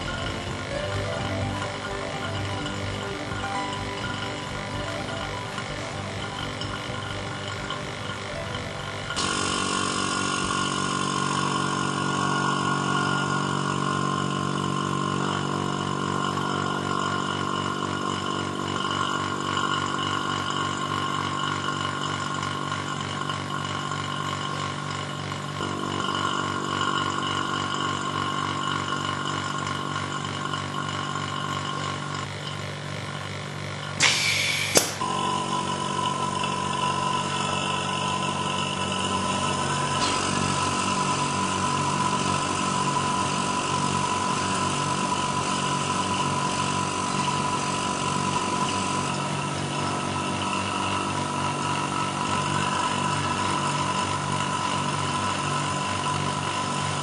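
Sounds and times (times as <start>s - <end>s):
machine hum: 0.0s - 57.0s
vacuum pump whine: 0.0s - 57.0s
valve hiss ending in click: 34.0s - 35.0s.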